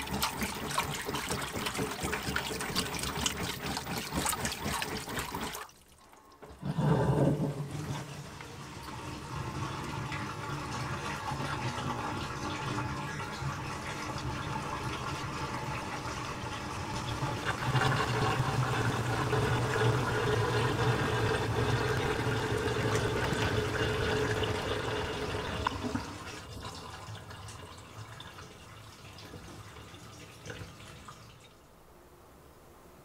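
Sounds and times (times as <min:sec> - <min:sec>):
washing machine water draining: 0:00.0 - 0:31.6.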